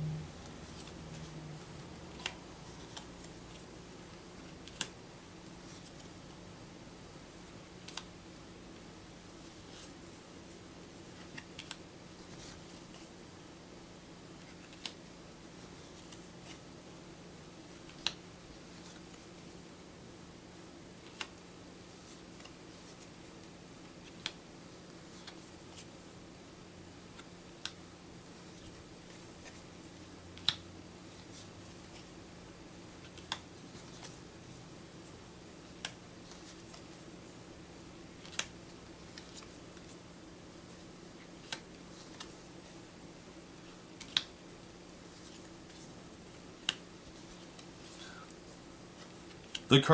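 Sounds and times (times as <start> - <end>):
steady low hum: 0.0 - 49.9
paper cards snapping and tapping: 17.8 - 18.2, 46.6 - 46.8.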